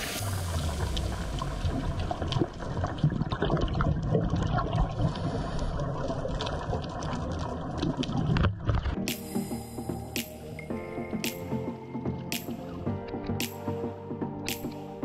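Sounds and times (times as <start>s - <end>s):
underwater rushing water: 0.0s - 10.6s
small underwater clicks and crackles: 0.4s - 9.0s.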